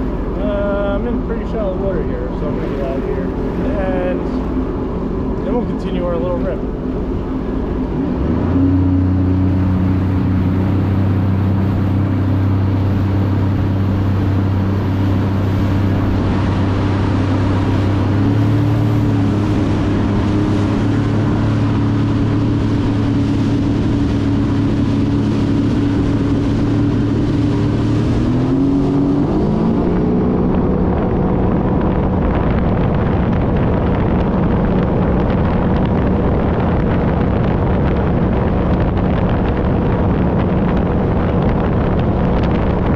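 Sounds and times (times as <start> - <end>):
water rushing and spraying: 0.0 - 42.9
watercraft engine running hard: 0.0 - 42.9.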